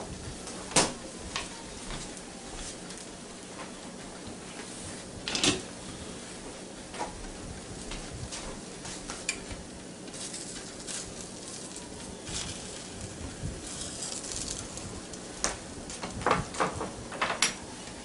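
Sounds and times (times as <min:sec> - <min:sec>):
egg sizzling in a pan: 0:10.0 - 0:15.5.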